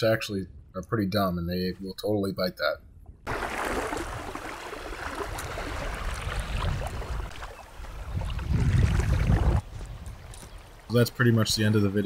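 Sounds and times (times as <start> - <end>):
wind rumbling on microphone: 2.9 - 10.9.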